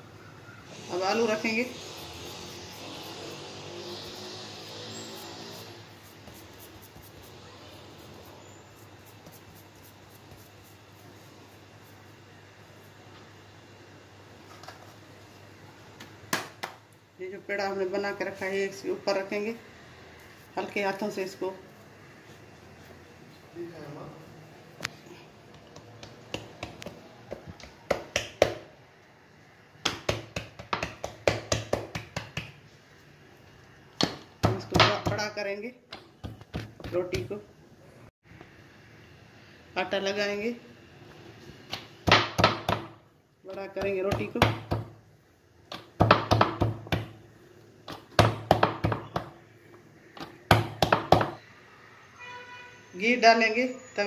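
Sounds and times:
hands patting dough on wooden board: 5.9 - 7.4, 8.8 - 11.2, 25.4 - 28.7, 29.8 - 32.7, 35.9 - 37.4, 45.7 - 47.2, 47.9 - 49.4, 50.2 - 51.4.

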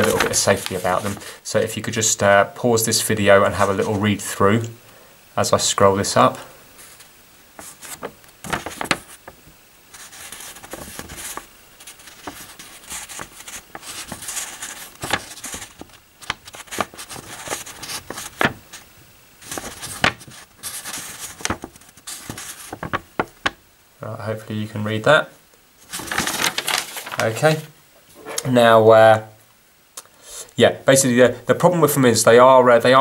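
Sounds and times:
paper rustling and crinkling: 0.0 - 1.3, 6.8 - 23.6, 25.8 - 28.4.

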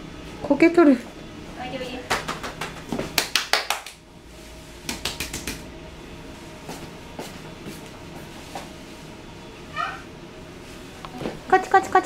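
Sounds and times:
hands clapping: 2.1 - 4.0, 4.8 - 5.6.

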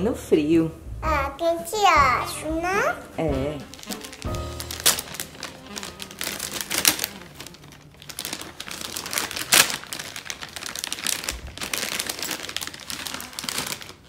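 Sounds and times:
paper ripping: 3.6 - 14.0
wrapping paper crinkling: 3.6 - 14.0.

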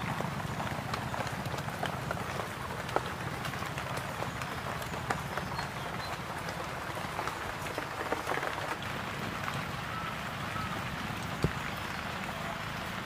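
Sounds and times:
soft ticks and crackles: 0.0 - 10.4.

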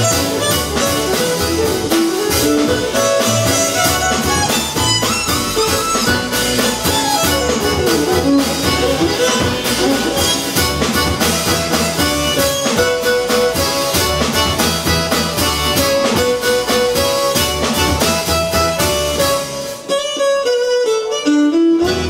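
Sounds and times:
busy drumming: 0.0 - 20.5, 21.8 - 22.0
double bass: 0.0 - 20.8, 21.6 - 22.0
accordion: 0.0 - 22.0
violin: 0.0 - 22.0.

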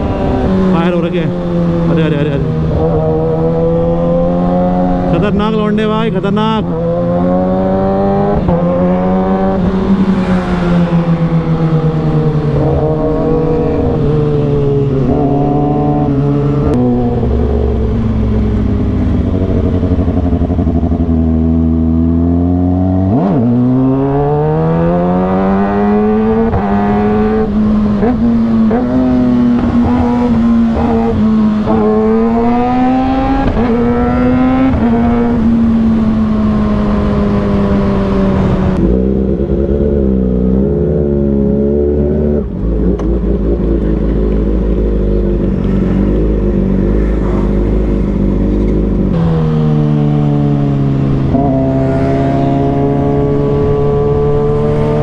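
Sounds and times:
motorcycle engine: 0.0 - 55.0.

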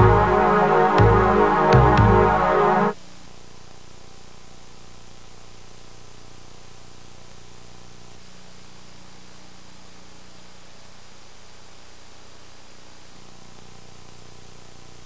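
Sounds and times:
low even hum: 0.0 - 3.0
tape hiss: 0.0 - 3.9.

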